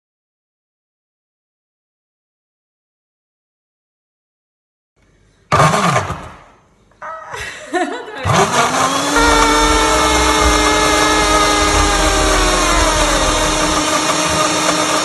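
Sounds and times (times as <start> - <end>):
blender motor whining: 8.3 - 15.0.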